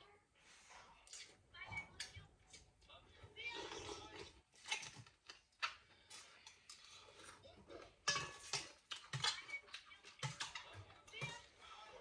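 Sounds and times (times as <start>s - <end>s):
kitchen utensils clinking: 6.2s - 12.0s.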